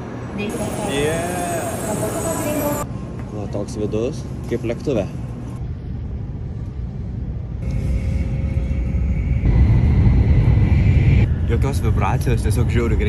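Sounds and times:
train low rumble: 0.0s - 13.0s
faint high whine: 7.6s - 12.0s.

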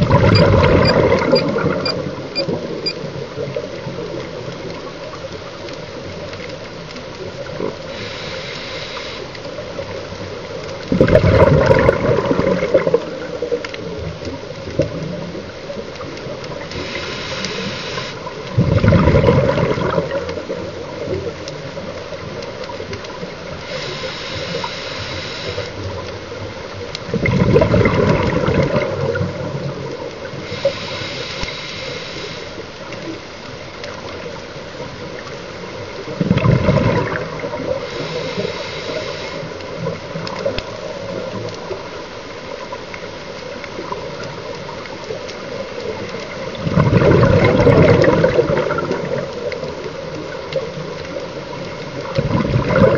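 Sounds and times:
exhaled bubbles rushing: 0.0s - 5.0s, 10.8s - 16.8s, 17.6s - 23.6s, 27.0s - 30.4s, 33.9s - 38.0s, 43.8s - 52.9s
regulator hissing inhale: 7.8s - 9.4s, 16.7s - 18.3s, 23.6s - 25.8s, 30.3s - 32.7s, 37.7s - 39.6s.

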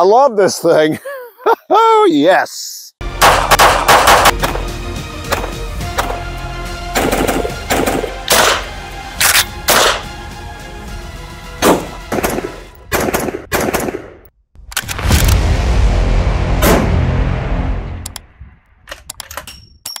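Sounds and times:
background music: 3.0s - 13.5s
rifle gunshots: 3.2s - 4.6s, 7.0s - 10.1s, 11.6s - 14.3s.

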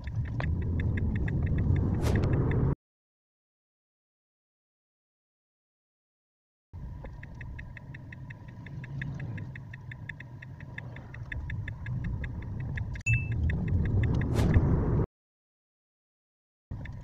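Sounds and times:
road and cabin noise: 0.0s - 2.8s, 6.8s - 15.1s, 16.7s - 17.0s
turn signal ticking: 0.0s - 2.8s, 6.8s - 14.6s, 16.7s - 17.0s
short beep: 13.1s - 13.4s.

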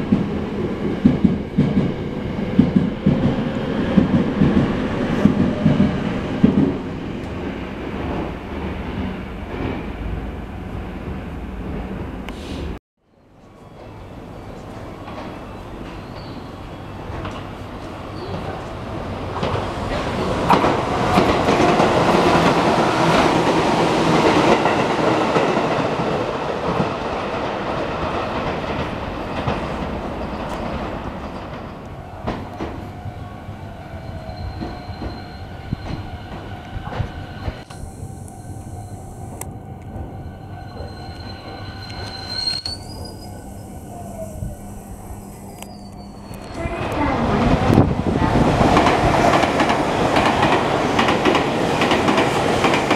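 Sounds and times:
train wheels rumbling on rails: 0.0s - 12.8s, 13.8s - 52.9s
train motor whining: 40.7s - 48.0s.

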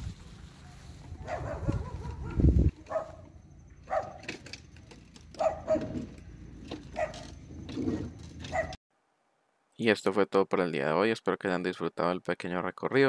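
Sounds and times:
dog barking: 0.7s - 4.3s, 5.4s - 6.1s, 6.9s - 7.3s, 8.5s - 8.8s.

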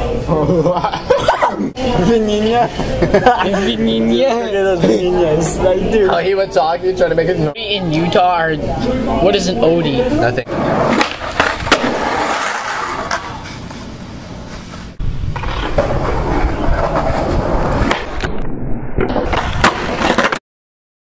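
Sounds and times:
skateboard wheels rolling on pavement: 10.5s - 20.4s
skateboard pops and clacks: 10.9s - 13.7s, 17.8s - 18.4s, 19.0s - 20.4s.

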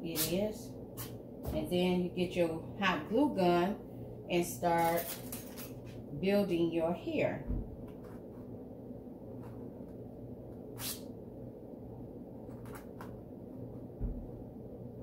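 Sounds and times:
steady low hum: 0.0s - 15.0s
dull thump: 14.0s - 14.4s.

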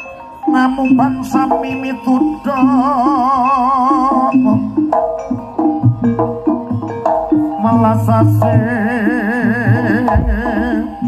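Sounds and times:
struck metallophones melody: 0.0s - 11.0s
wavering melody with vibrato: 0.0s - 11.0s
low drum beats: 4.6s - 11.0s.

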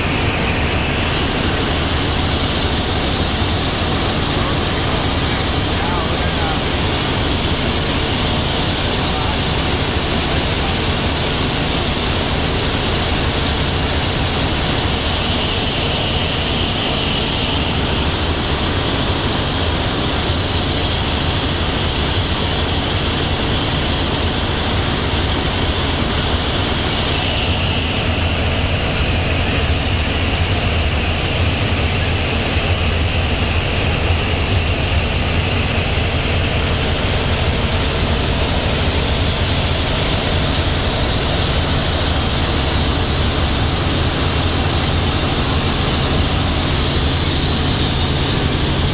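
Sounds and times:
airflow hiss: 0.0s - 48.9s
helicopter rotor and engine drone: 0.0s - 48.9s.

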